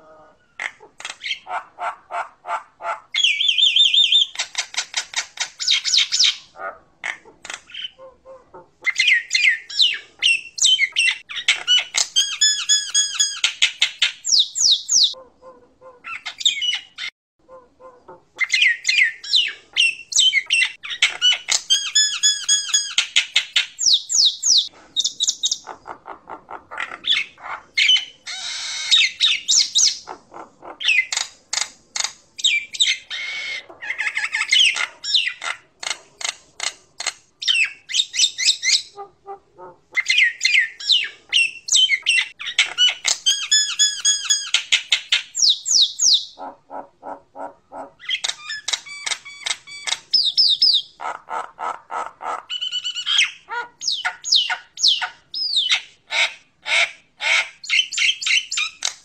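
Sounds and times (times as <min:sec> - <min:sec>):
myna singing squawks and whistles: 0:03.2 - 0:04.6, 0:08.9 - 0:15.2.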